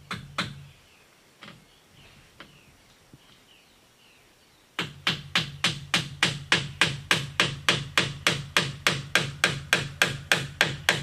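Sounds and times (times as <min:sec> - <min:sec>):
hammer knocking on bamboo: 0:00.0 - 0:00.6, 0:04.8 - 0:11.0
faint bird chirps: 0:00.4 - 0:04.8.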